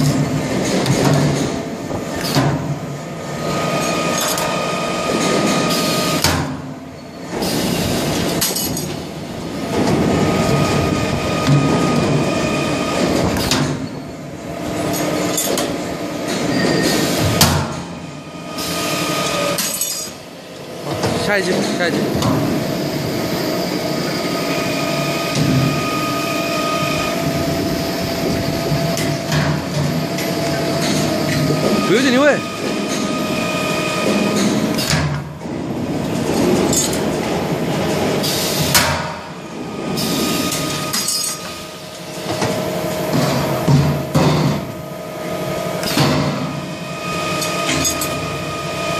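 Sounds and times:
machine hum: 0:00.0 - 0:48.9
workshop noise: 0:00.0 - 0:48.9
pneumatic hiss: 0:07.2 - 0:08.8, 0:16.4 - 0:17.6.

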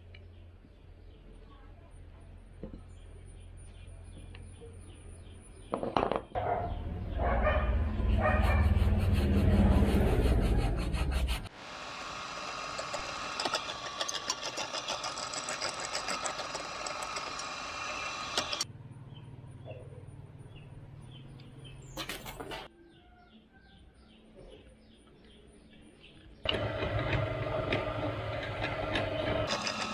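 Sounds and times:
low motor hum: 0:06.4 - 0:21.8, 0:26.5 - 0:29.9
drill press cutting metal: 0:11.6 - 0:18.6, 0:26.5 - 0:29.9.

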